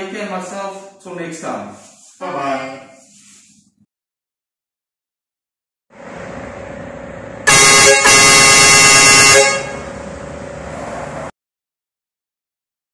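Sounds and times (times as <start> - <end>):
air horn blast: 7.4 - 10.0.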